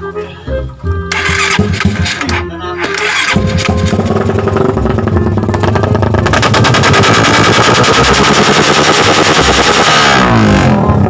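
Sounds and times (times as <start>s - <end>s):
motorcycle engine running: 1.1s - 11.0s
exhaust backfire pops: 1.6s - 2.4s, 3.3s - 10.4s.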